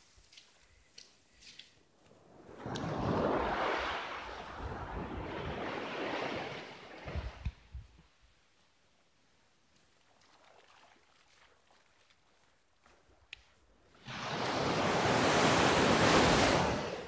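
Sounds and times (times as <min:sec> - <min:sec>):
waves washing up a beach: 0:02.2 - 0:07.6, 0:13.9 - 0:17.0.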